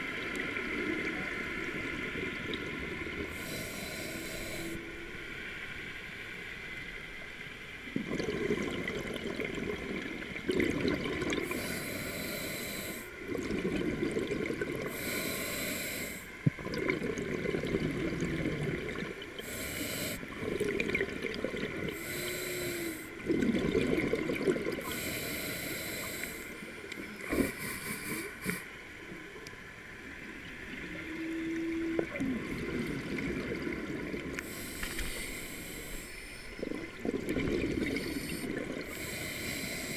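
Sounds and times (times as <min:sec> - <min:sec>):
regulator breath hiss: 0:03.3 - 0:04.9, 0:11.4 - 0:13.2, 0:14.9 - 0:16.4, 0:19.4 - 0:20.3, 0:22.0 - 0:23.2, 0:24.8 - 0:26.7, 0:27.3 - 0:28.8, 0:34.4 - 0:36.6, 0:38.0 - 0:39.9
exhaled bubbles gurgling: 0:08.0 - 0:12.3, 0:13.2 - 0:15.4, 0:16.4 - 0:22.2, 0:23.1 - 0:25.2, 0:30.6 - 0:39.9.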